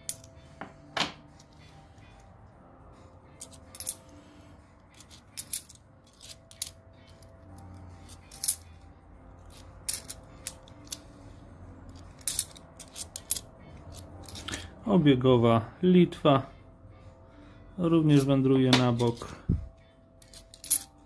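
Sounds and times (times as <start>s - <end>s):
coins set down on wooden table: 0.0s - 1.2s, 20.2s - 20.9s
coins clinking: 3.3s - 4.1s, 4.9s - 8.8s, 9.4s - 11.1s, 11.8s - 14.6s, 20.2s - 21.0s.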